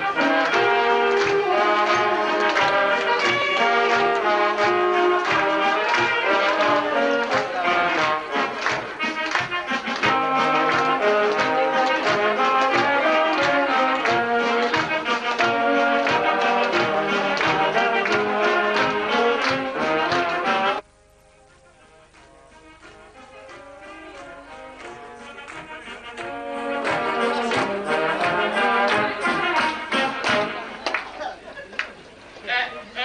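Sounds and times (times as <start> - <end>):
steady drum beat: 0.0 - 20.9
brass band playing: 0.0 - 30.9.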